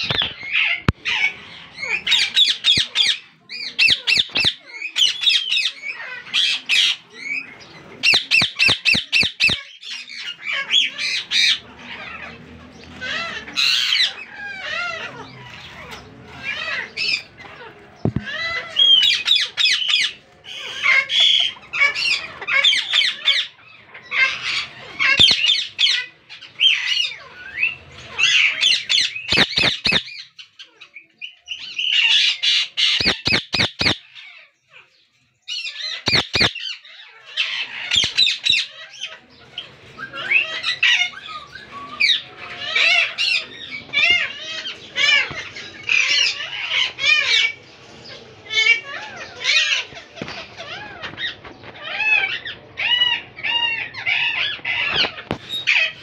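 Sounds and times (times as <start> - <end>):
parakeets squawking and chirping: 0.0 - 56.0
sharp bird clicks: 36.1 - 36.5.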